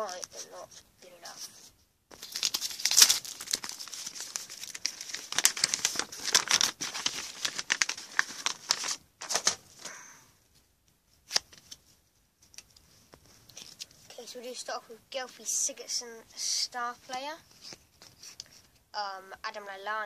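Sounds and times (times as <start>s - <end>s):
wrapper tearing and crinkling: 2.1s - 9.7s.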